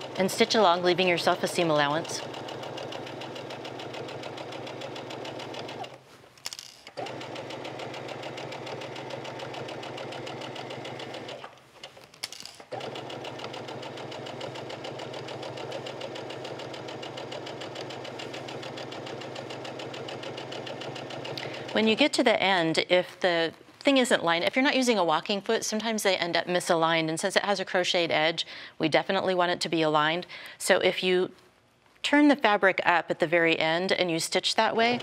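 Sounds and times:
sewing machine stitching: 0.0s - 6.0s, 6.9s - 21.9s.

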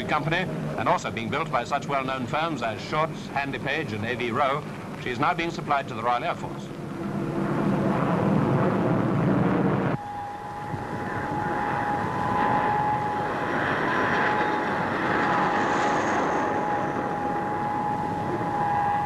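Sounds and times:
jet aircraft roar with whine: 0.0s - 19.0s.

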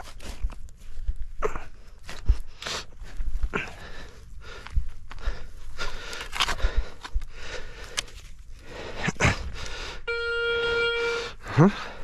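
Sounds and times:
metal detector beep: 10.1s - 11.4s.

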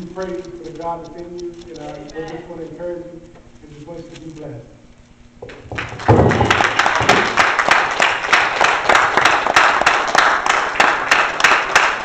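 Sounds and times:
close hands clapping steadily: 5.7s - 12.0s
congregation applauding: 5.7s - 12.0s.

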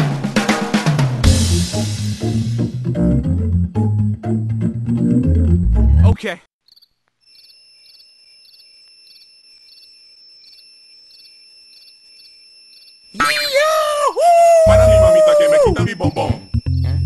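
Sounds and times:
music: 0.0s - 6.2s, 14.7s - 17.0s
crickets chirping: 6.6s - 17.0s.

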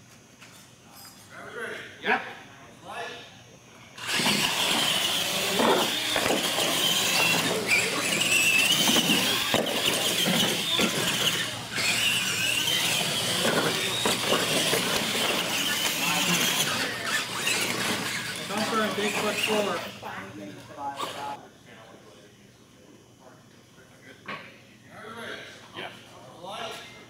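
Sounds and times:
tires scrubbing on concrete: 4.0s - 20.0s
electric motors whining: 4.0s - 21.4s.

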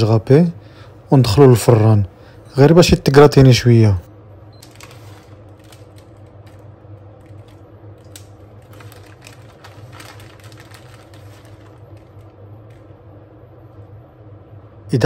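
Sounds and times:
faint low hum: 0.0s - 15.0s
plastic bag crinkling: 4.6s - 12.9s.

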